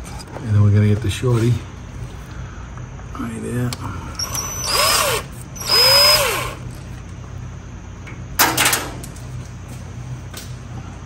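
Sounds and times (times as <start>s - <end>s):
cordless power tool spinning bolt: 4.2s - 6.8s.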